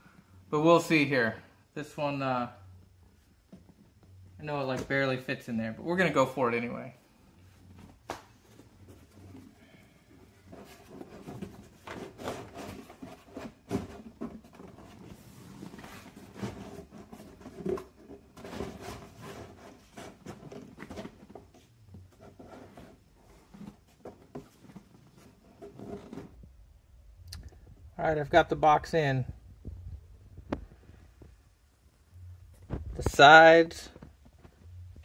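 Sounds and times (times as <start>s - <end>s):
rubbing scraping and light knocks: 7.5s - 26.4s.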